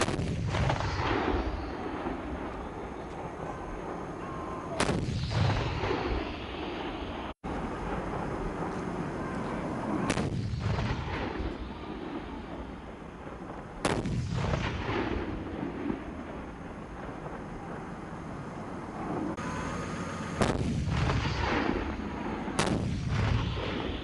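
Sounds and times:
heavy gun blasts: 0:00.0 - 0:17.5, 0:20.2 - 0:24.0
low rolling rumble: 0:00.0 - 0:24.0.

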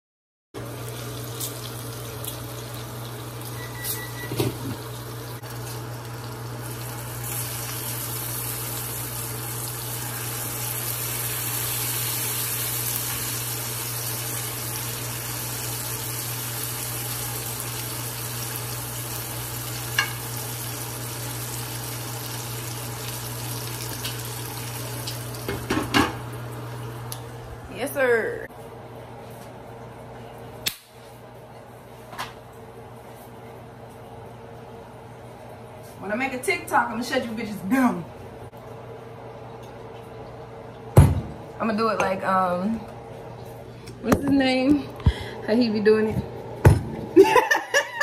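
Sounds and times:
water running from tap: 0:00.6 - 0:27.1
bacon sizzling in frying pan: 0:00.6 - 0:27.4.

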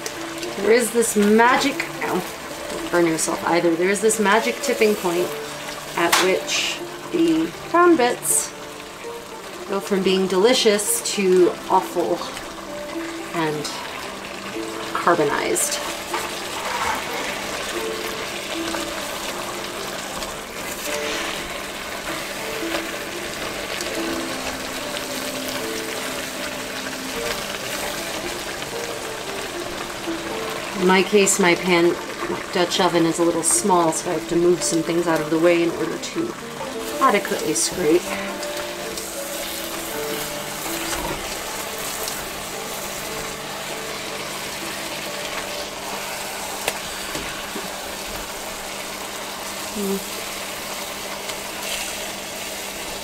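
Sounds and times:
wine sizzling in a pot: 0:00.0 - 0:53.0
pan stirred and scraped: 0:15.8 - 0:17.7, 0:20.5 - 0:23.1
spoon scraping a pan: 0:16.0 - 0:17.5.

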